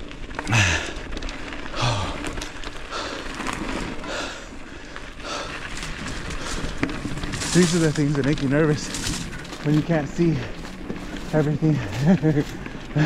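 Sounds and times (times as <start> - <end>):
tyres rumbling on dirt trail: 0.0 - 13.0
person breathing hard: 0.5 - 6.8.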